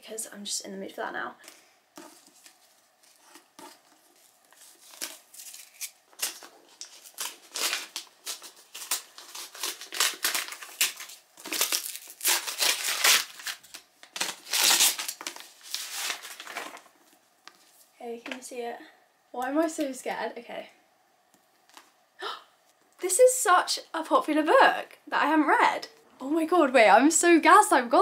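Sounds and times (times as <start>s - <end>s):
paper crinkling and rustling: 2.0s - 17.9s.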